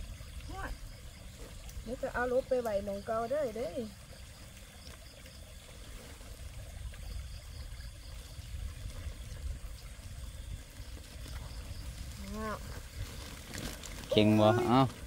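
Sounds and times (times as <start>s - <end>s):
plastic sack rustling: 12.0s - 15.0s.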